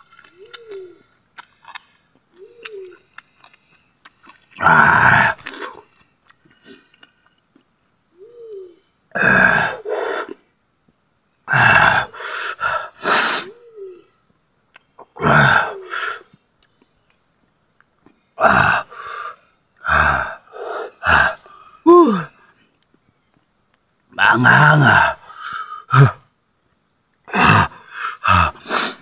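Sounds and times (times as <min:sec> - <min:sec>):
man gasping and blowing breaths: 0:27.3 - 0:29.0.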